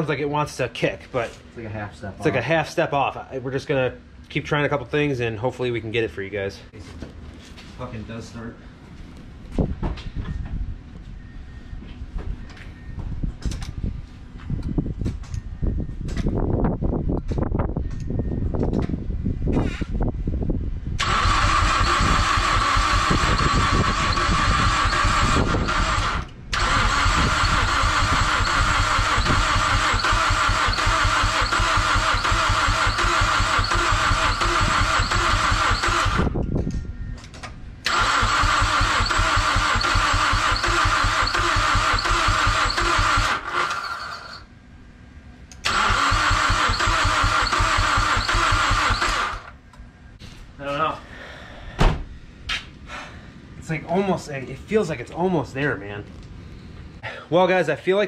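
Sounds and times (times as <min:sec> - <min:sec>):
engine cranking on starter: 0:21.0 - 0:36.4, 0:37.8 - 0:44.4, 0:45.6 - 0:49.6.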